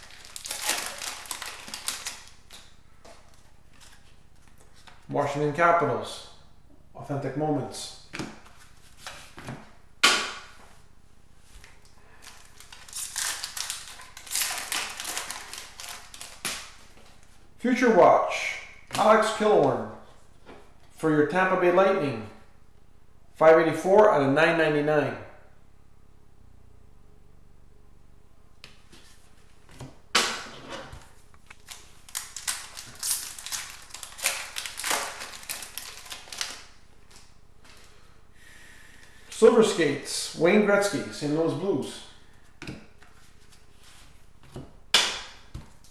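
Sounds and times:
cards rustling and crinkling: 0:00.0 - 0:05.1, 0:08.1 - 0:09.7, 0:11.5 - 0:17.4, 0:31.0 - 0:38.0
loud sharp snap: 0:10.0 - 0:10.5.

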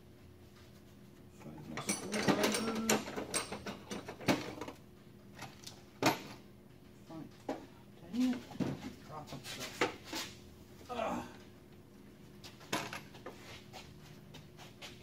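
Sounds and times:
metal parts clinking and rattling: 0:01.8 - 0:04.7.

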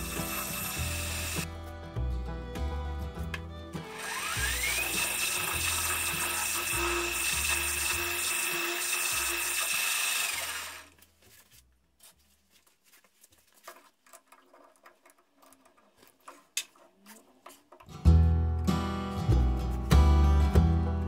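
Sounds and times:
metal lathe whining: 0:00.0 - 0:01.5, 0:03.9 - 0:10.9.

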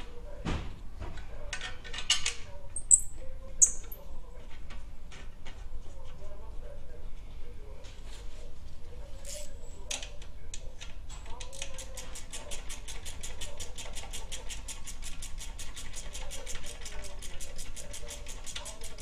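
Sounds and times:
socket ratchet clicking: 0:02.8 - 0:04.0.

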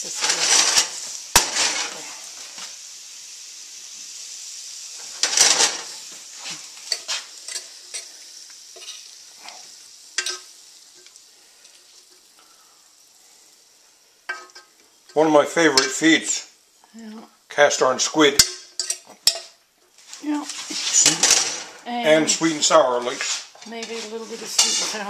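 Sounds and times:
squid sizzling in a frying pan: 0:00.0 - 0:25.0
utensil clinking on pan and plate: 0:05.0 - 0:06.0, 0:06.8 - 0:08.2, 0:08.8 - 0:09.6, 0:10.2 - 0:12.2, 0:14.3 - 0:16.2, 0:18.2 - 0:19.6, 0:23.0 - 0:25.0.

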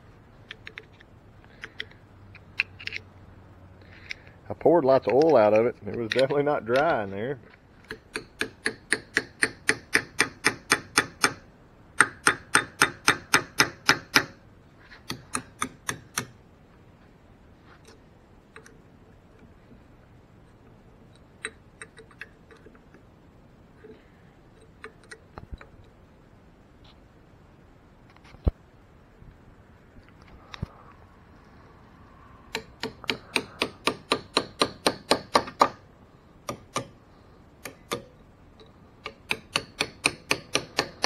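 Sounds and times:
hammer striking steel punch: 0:07.9 - 0:11.4, 0:12.0 - 0:14.4, 0:32.5 - 0:35.8, 0:36.4 - 0:37.0, 0:37.6 - 0:38.1, 0:39.0 - 0:41.0.

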